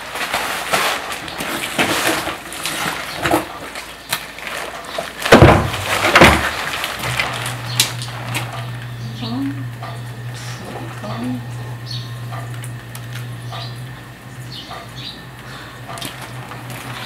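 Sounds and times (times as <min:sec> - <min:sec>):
raincoat rustling and crinkling: 0:00.0 - 0:08.8
handling bumps: 0:00.0 - 0:08.9.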